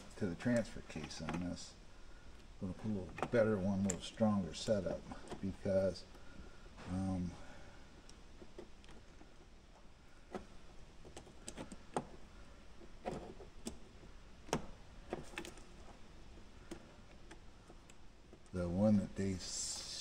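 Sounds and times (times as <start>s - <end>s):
clicks and taps of plastic parts: 2.4s - 4.2s, 10.3s - 18.6s.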